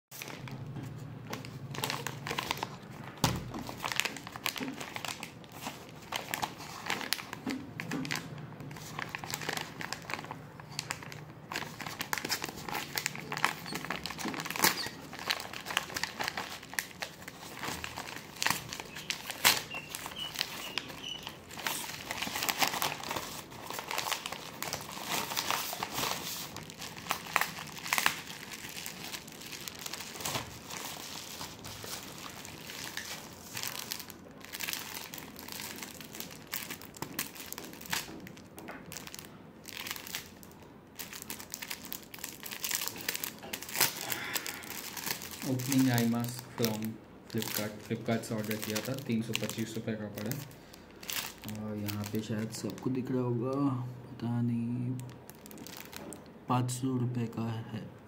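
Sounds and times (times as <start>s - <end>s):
bubble wrap package handled: 0.2s - 53.2s, 55.0s - 56.3s
paper envelope tearing: 11.5s - 29.2s.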